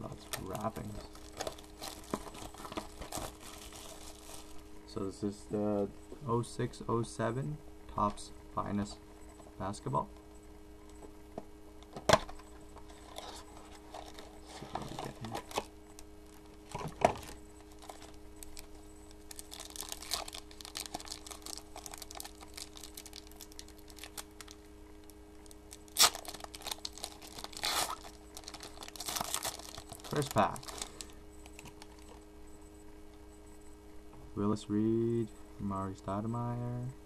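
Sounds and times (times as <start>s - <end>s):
faint steady hum: 0.0s - 37.0s
plastic wrapper tearing and crinkling: 0.3s - 4.6s, 13.1s - 15.7s, 16.4s - 18.7s, 19.3s - 24.6s, 25.4s - 32.2s.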